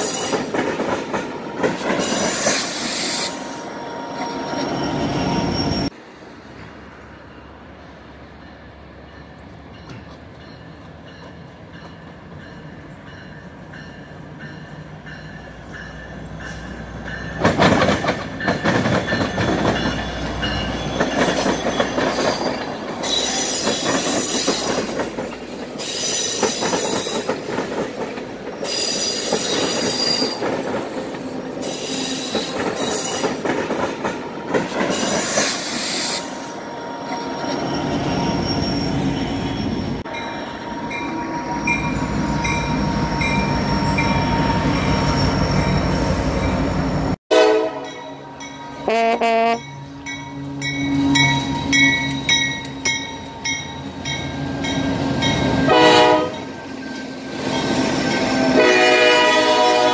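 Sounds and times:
train wheels squealing: 0.0 - 0.5, 1.8 - 6.0, 18.4 - 27.4, 28.6 - 30.6, 31.6 - 33.5, 34.9 - 47.2, 49.7 - 58.6
wheels rumbling and clattering on rail: 0.0 - 59.9.

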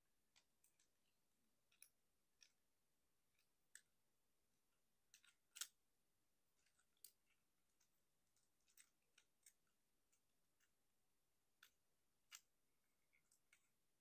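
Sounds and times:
plastic toy parts clicking: 1.7 - 2.6, 5.1 - 5.8, 6.6 - 10.8, 11.5 - 12.5.

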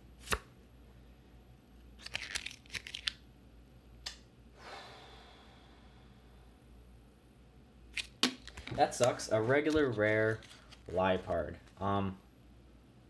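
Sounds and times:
card crinkling and crunching: 2.0 - 3.2, 8.0 - 11.8.

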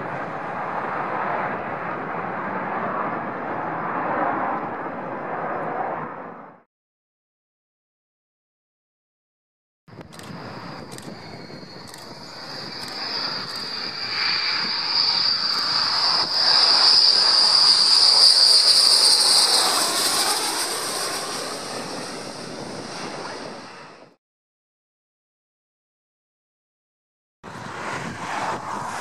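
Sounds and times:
jet engines whining and roaring: 0.0 - 6.7, 9.9 - 24.2, 27.5 - 29.0.

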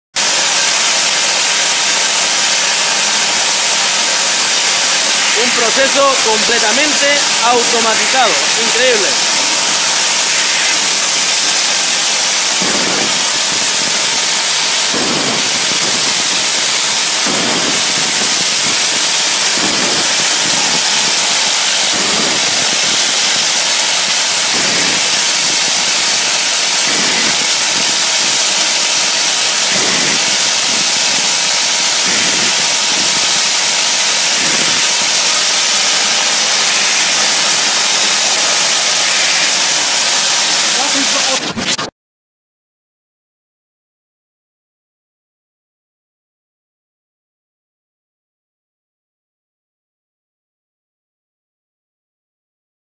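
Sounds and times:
dull machine stroke: 0.2 - 41.9
machine hissing: 0.2 - 41.9.

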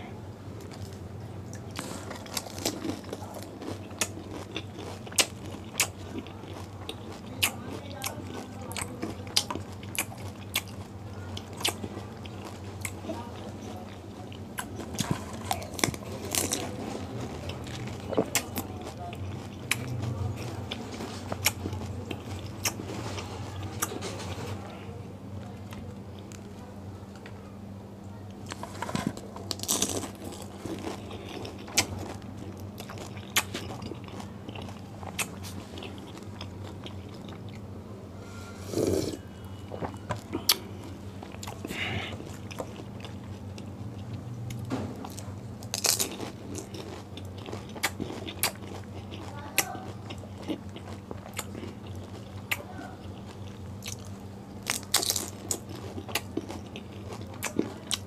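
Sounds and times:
steady low hum: 0.0 - 58.0
wet chewing: 0.6 - 24.4, 28.4 - 37.6, 38.7 - 58.0
crisp shells crunching: 1.8 - 6.7, 28.5 - 37.4, 45.0 - 49.4, 53.9 - 57.6.

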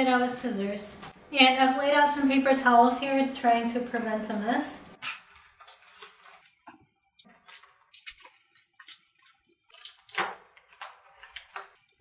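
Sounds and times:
plastic crackling as peeled: 5.0 - 12.0.

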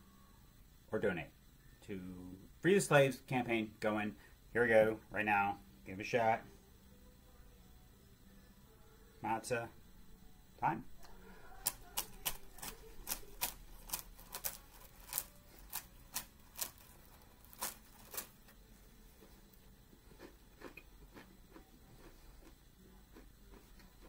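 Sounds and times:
crackers crunching: 11.0 - 18.6, 19.2 - 24.0.

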